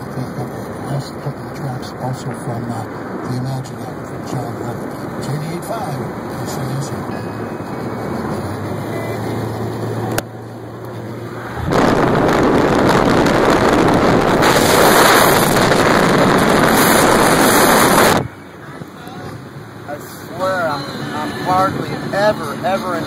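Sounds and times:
car road noise and engine hum: 0:00.0 - 0:23.0
wind buffeting microphone: 0:11.5 - 0:19.7.

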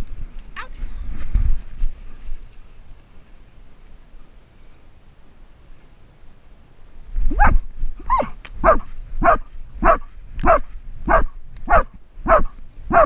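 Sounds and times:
dog barking: 0:07.4 - 0:13.0.

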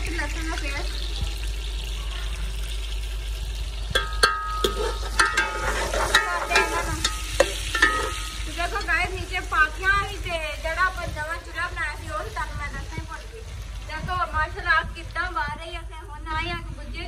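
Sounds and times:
ladle clinking against metal pot: 0:04.0 - 0:09.0.

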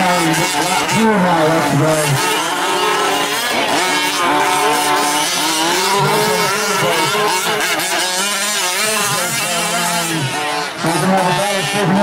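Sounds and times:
small two-stroke engines revving: 0:00.0 - 0:12.0.

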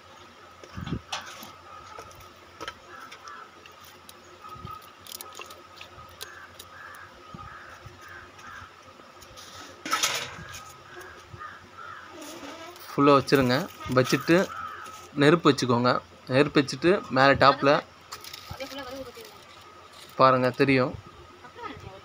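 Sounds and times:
crows cawing: 0:01.1 - 0:08.9, 0:09.9 - 0:12.8, 0:13.9 - 0:15.2
wet squelches: 0:02.9 - 0:07.1.

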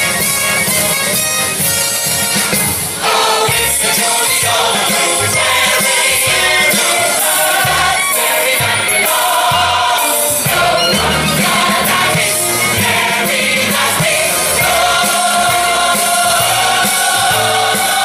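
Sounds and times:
choir singing: 0:02.8 - 0:18.0
bass line: 0:03.5 - 0:18.0.

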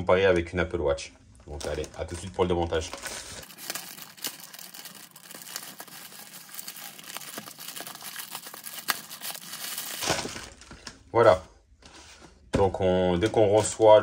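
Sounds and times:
plastic mailer bag crinkling: 0:01.4 - 0:11.0
package rustling: 0:01.4 - 0:11.1.

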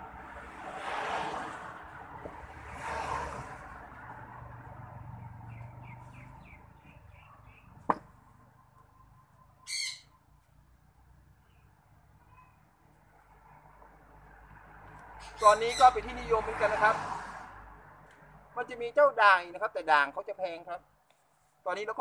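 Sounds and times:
birds chirping: 0:05.0 - 0:10.5, 0:15.2 - 0:16.3
terracotta pot knock: 0:07.9 - 0:08.1.

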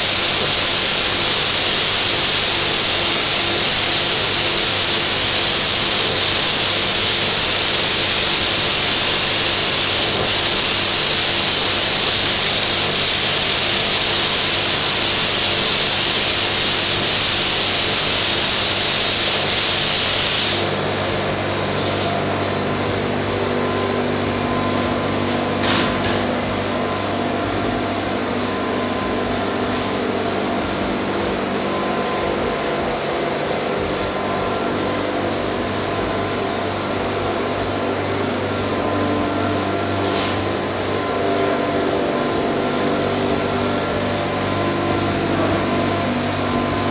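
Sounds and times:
paint spray gun hissing: 0:00.0 - 0:26.6
machine hum: 0:00.0 - 0:46.9.

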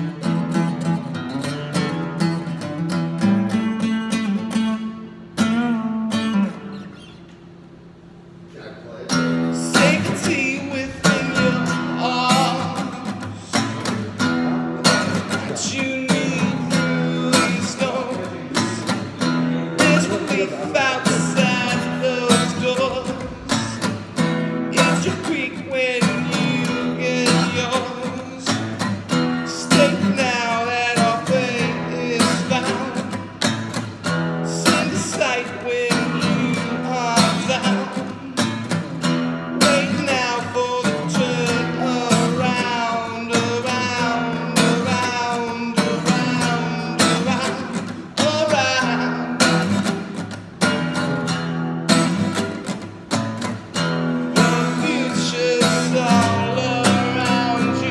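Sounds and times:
strummed acoustic guitar: 0:00.0 - 0:57.9
man singing: 0:09.4 - 0:33.5, 0:34.4 - 0:38.8, 0:39.5 - 0:50.1, 0:54.2 - 0:57.9.

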